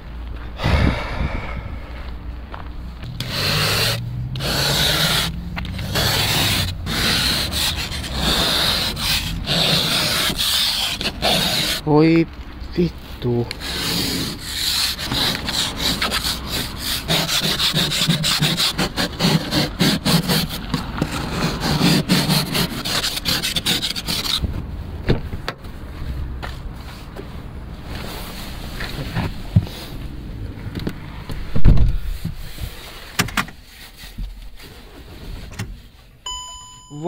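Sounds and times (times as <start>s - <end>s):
ice scraper scraping windscreen: 3.2s - 11.8s, 13.6s - 24.4s.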